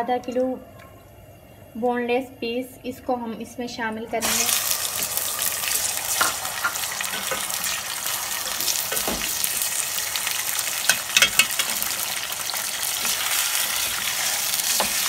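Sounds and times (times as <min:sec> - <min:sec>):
chicken sizzling in hot oil: 0:04.2 - 0:15.0.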